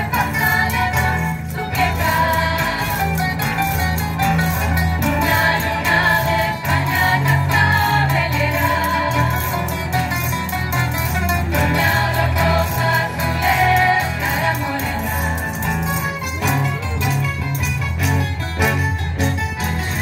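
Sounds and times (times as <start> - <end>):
women singing together: 0.0 - 3.4, 5.0 - 9.8, 11.5 - 15.6
strummed guitars: 0.0 - 20.0.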